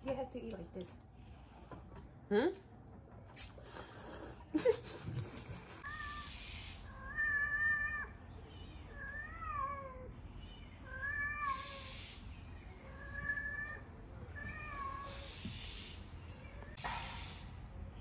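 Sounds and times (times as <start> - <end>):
cat meowing: 5.8 - 8.2, 10.9 - 12.0.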